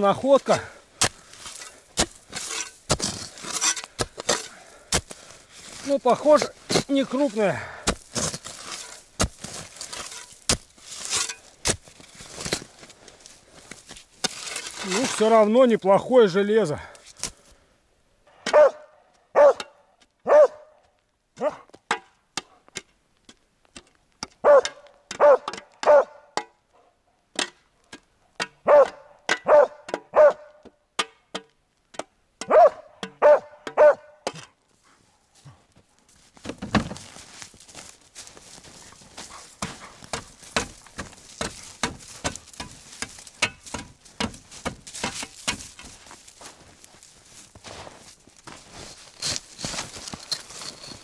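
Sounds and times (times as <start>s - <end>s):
crunching and scraping in snow: 0.0s - 17.5s, 34.7s - 51.0s
dog barking: 18.4s - 20.8s, 21.4s - 21.7s, 24.4s - 27.0s, 28.6s - 30.6s, 32.5s - 34.2s.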